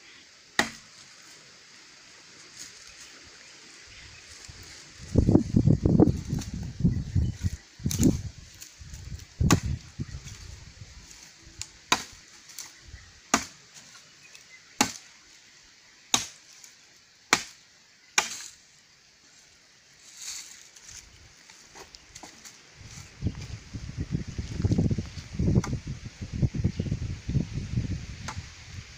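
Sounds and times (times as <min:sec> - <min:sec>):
machete chopping wood: 0:00.6 - 0:00.9, 0:09.4 - 0:09.8, 0:11.9 - 0:12.2, 0:13.3 - 0:13.6, 0:14.8 - 0:15.0, 0:16.1 - 0:16.4, 0:17.3 - 0:17.6, 0:18.2 - 0:18.5.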